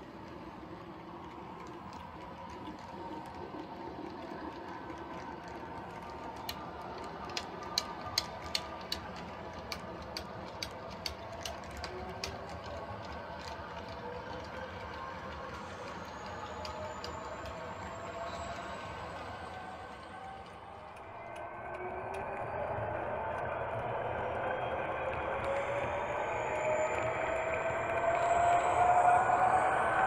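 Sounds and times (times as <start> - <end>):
model train cars rolling: 0.0 - 22.2.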